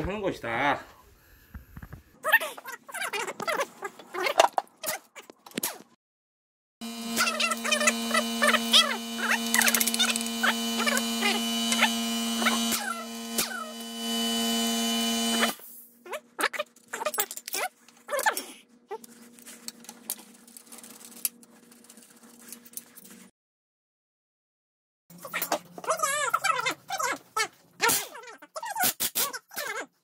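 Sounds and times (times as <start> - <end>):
electrical hum: 6.8 - 15.6.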